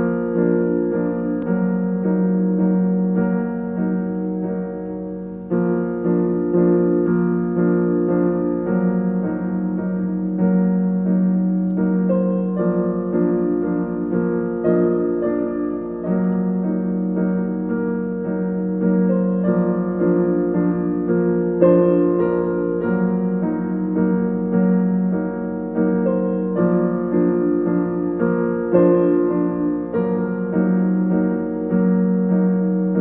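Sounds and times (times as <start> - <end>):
solo piano: 0.0 - 33.0.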